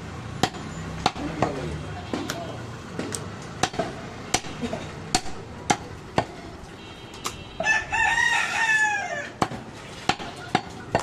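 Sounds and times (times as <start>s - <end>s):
rooster crowing: 7.6s - 9.4s.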